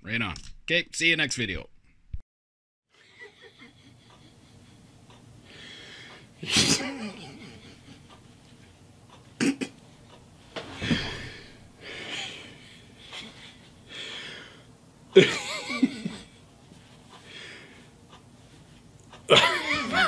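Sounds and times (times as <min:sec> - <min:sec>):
man laughing in breathy bursts: 0:03.0 - 0:08.2, 0:10.8 - 0:16.5, 0:19.3 - 0:20.0.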